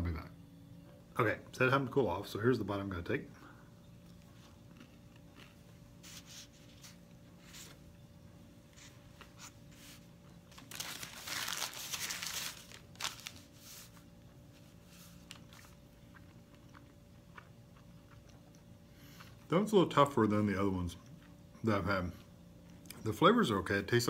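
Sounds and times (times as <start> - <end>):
man chewing crunchy food: 4.0 - 7.6, 14.0 - 19.5, 21.0 - 21.6.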